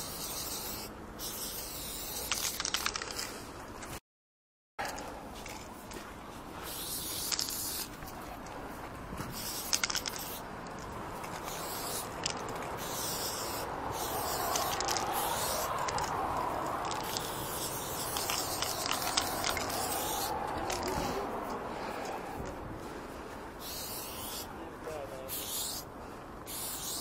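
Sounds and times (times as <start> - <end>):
spray paint can hissing: 0.0 - 3.3, 6.7 - 7.9, 9.3 - 10.5, 11.2 - 21.0, 23.6 - 24.5, 25.3 - 25.9, 26.5 - 27.0.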